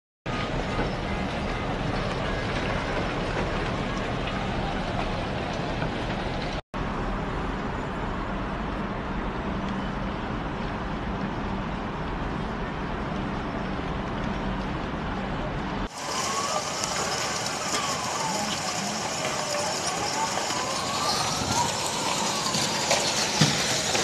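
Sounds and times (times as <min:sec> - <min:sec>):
city traffic rumble: 0:00.3 - 0:24.0.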